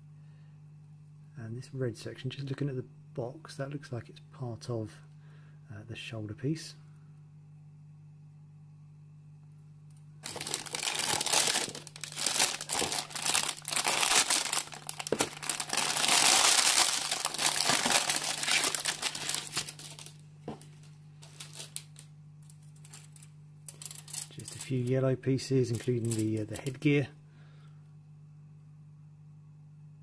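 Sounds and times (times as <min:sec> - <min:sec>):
plastic bags crinkling: 0:10.2 - 0:24.9, 0:25.6 - 0:26.7.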